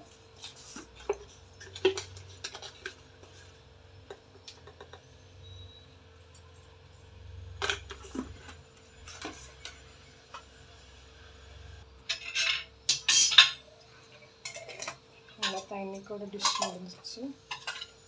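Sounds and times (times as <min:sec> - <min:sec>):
faint steady hum: 0:00.0 - 0:18.0
metal containers clinking: 0:12.0 - 0:13.6, 0:14.4 - 0:18.0.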